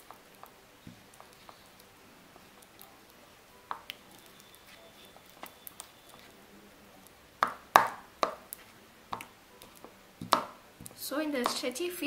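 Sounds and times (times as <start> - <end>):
slime squelching and popping: 0.0 - 6.4.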